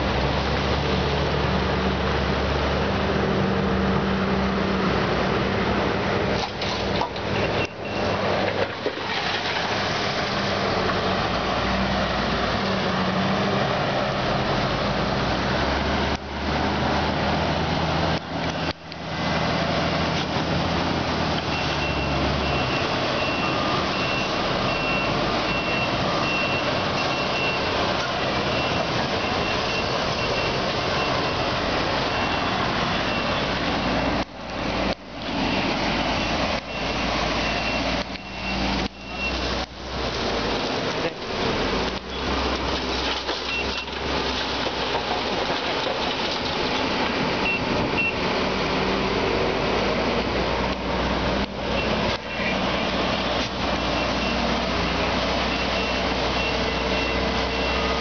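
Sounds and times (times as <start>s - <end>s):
excavator diesel engine under load: 0.0s - 58.0s
rushing river: 0.0s - 58.0s
reversing beeper: 21.5s - 34.2s, 35.4s - 39.4s, 53.8s - 58.0s.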